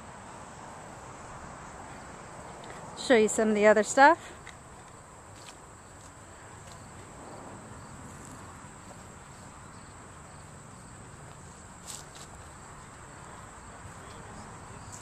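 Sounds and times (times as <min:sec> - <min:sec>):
faint background noise: 0:00.0 - 0:15.0
high insect trill: 0:00.1 - 0:15.0.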